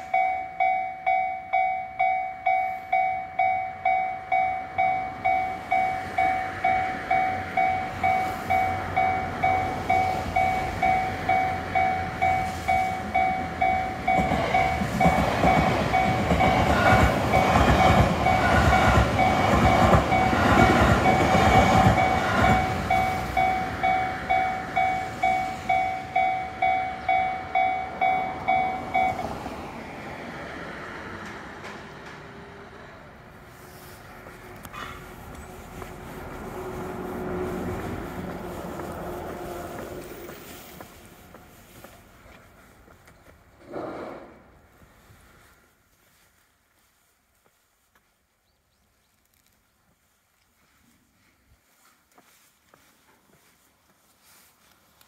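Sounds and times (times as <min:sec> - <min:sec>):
level crossing bell ringing: 0:00.0 - 0:16.7, 0:17.3 - 0:29.4
train wheels rumbling and clattering: 0:05.1 - 0:45.0.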